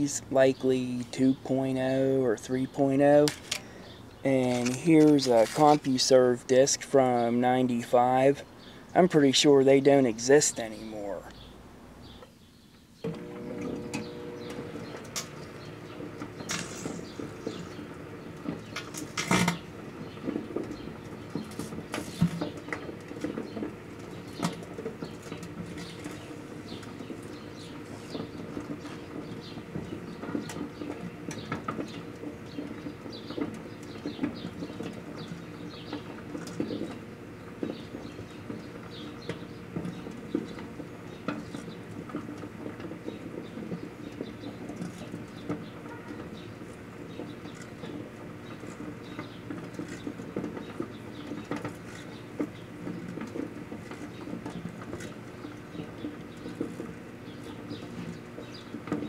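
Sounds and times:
crackles and pops of burning disks: 0.0s - 59.0s
microwave oven humming: 13.0s - 21.9s, 22.5s - 59.0s.

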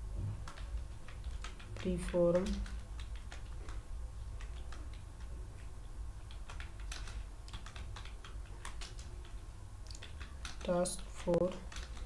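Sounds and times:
keyboard typing: 0.4s - 12.0s.

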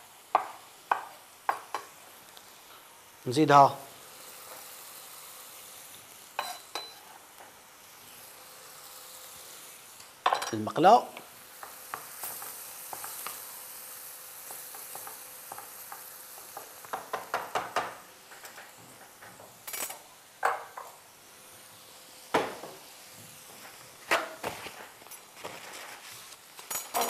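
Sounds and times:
sauce sizzling in a frying pan: 0.0s - 27.0s
sharp kitchen knocks: 16.9s - 18.0s.

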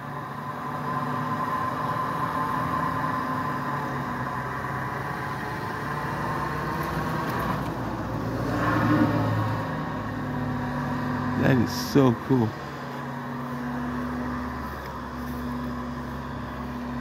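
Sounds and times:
bus engine rumble: 0.0s - 17.0s
loader engine drone: 0.0s - 17.0s
high whine: 7.8s - 17.0s.

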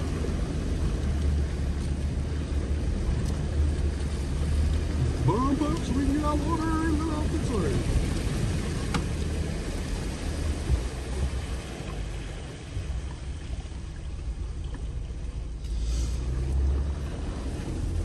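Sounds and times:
trail noise: 0.0s - 18.0s
vehicle engine rumbling: 0.0s - 18.0s
brief hiss: 15.6s - 16.4s.

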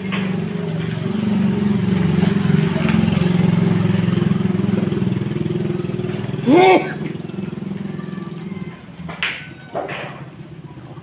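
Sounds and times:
small engine idling: 0.0s - 11.0s.

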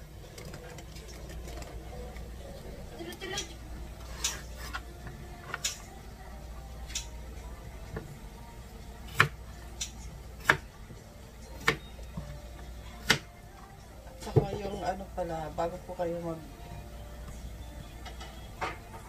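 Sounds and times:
knife chopping on cutting board: 10.4s - 10.7s.

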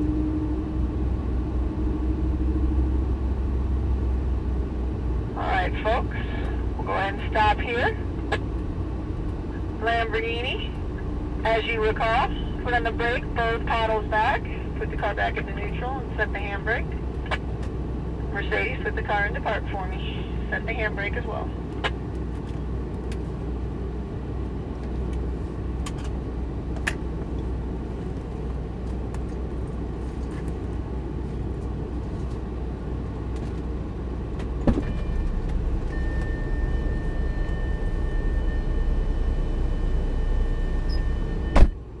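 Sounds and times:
car engine idling: 33.5s - 42.0s
high warning tone: 34.8s - 41.8s.

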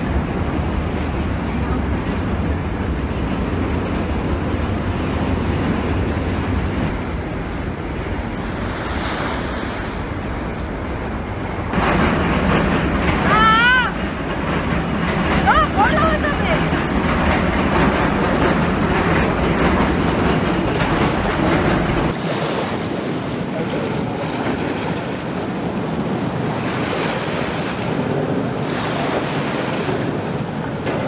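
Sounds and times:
wind rumbling on microphone: 0.0s - 31.0s
waves washing over pebbles: 6.9s - 10.8s, 21.8s - 30.9s.

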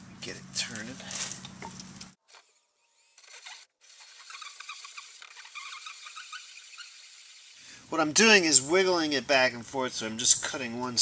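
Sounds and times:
hole saw rasping on plastic: 3.2s - 7.2s.

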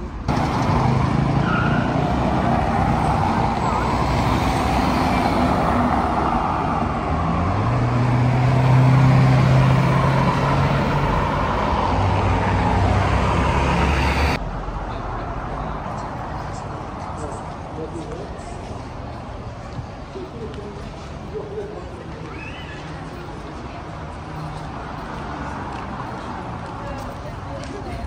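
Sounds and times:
traffic passing: 0.0s - 28.0s.

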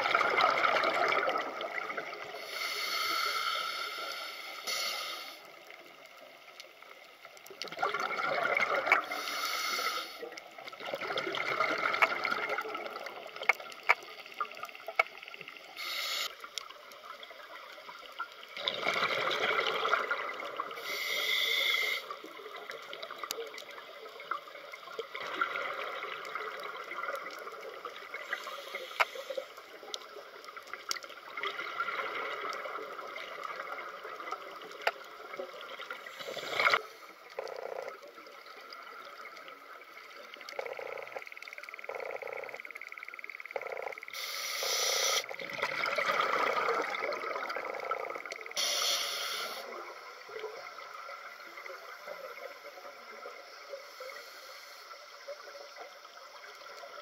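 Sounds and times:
exhaled bubbles gurgling: 0.0s - 2.8s, 7.4s - 54.2s
regulator inhalation hiss: 2.4s - 5.6s, 9.0s - 10.4s, 15.7s - 16.5s, 20.8s - 22.3s, 28.2s - 29.6s, 36.1s - 37.2s, 44.1s - 45.3s, 48.6s - 49.8s, 53.6s - 55.3s.

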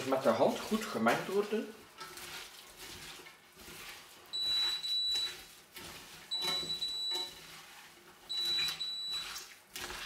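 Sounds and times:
hands kneading minced meat: 0.0s - 10.0s
electronic beeper tone: 6.3s - 7.3s, 8.3s - 9.2s.

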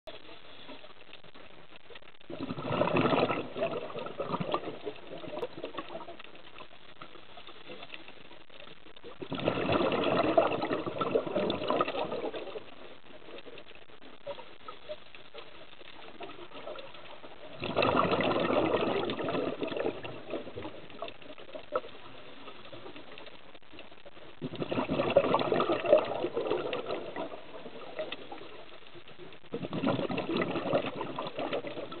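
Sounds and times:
regulator exhale bubbling: 2.2s - 6.2s, 9.1s - 12.8s, 17.4s - 21.2s, 24.4s - 28.4s, 29.5s - 32.0s
faint clicks: 3.6s - 9.3s, 10.6s - 24.4s, 25.4s - 32.0s.

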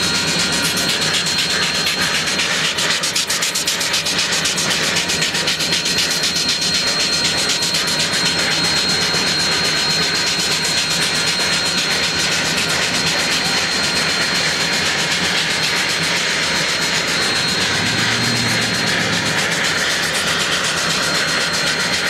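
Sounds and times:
steam locomotive hissing: 0.0s - 22.0s
thin high whine: 0.0s - 22.0s
low hum: 15.3s - 21.7s.

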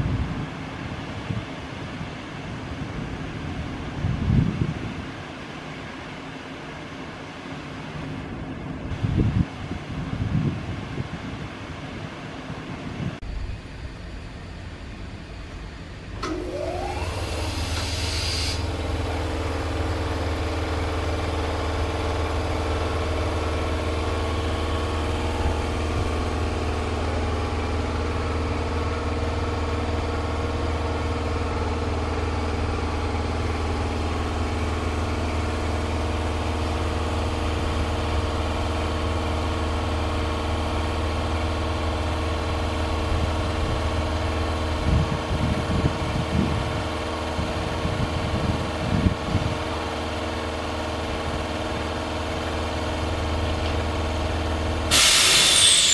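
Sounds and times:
electric train humming: 0.0s - 55.9s
rising whine: 13.2s - 49.6s
brief hiss: 17.2s - 18.7s, 54.9s - 55.9s.

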